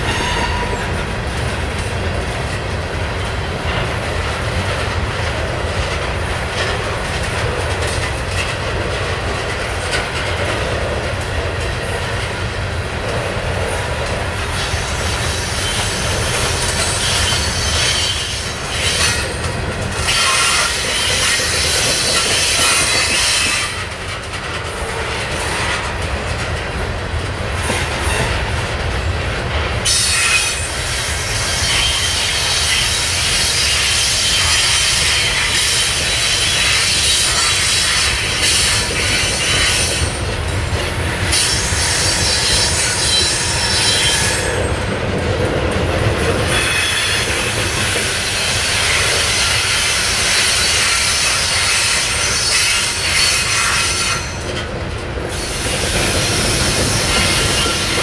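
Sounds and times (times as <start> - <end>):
high wheel squeal: 0.0 - 0.9, 14.6 - 19.4, 46.5 - 54.4
train wheels rumbling on rails: 0.0 - 58.0.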